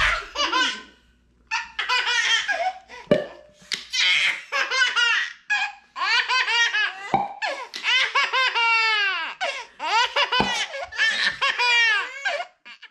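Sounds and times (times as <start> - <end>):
dull thumps: 0.0 - 0.5
baby laughing: 0.0 - 3.1, 3.8 - 12.9.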